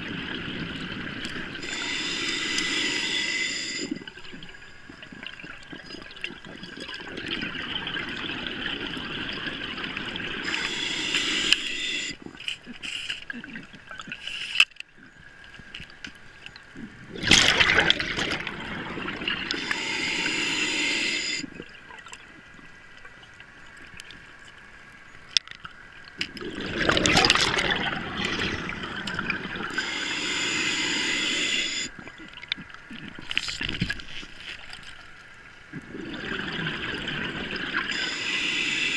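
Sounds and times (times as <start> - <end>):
diver exhaling bubbles underwater: 16.9 - 21.7, 26.4 - 33.1, 35.7 - 38.9.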